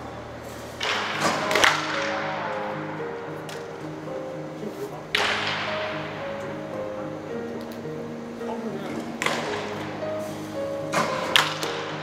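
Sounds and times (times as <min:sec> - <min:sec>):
background music with sustained notes: 0:00.0 - 0:12.0
sharp crack with hiss: 0:00.4 - 0:02.4.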